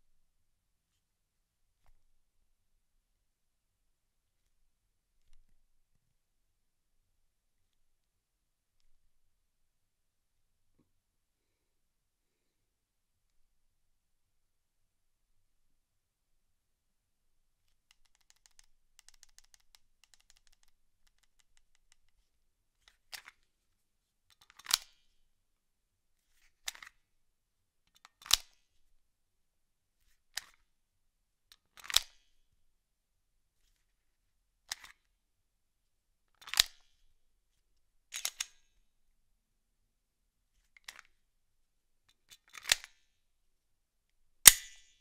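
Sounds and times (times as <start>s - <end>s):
pistol mechanical clicks: 28.1s - 28.6s, 38.1s - 38.7s, 42.4s - 43.0s, 44.4s - 44.9s.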